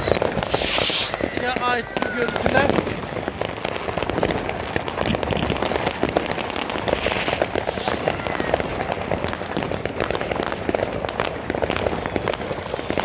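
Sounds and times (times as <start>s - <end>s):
firework whistle: 0.0s - 8.9s
fireworks crackling and banging: 0.0s - 13.0s.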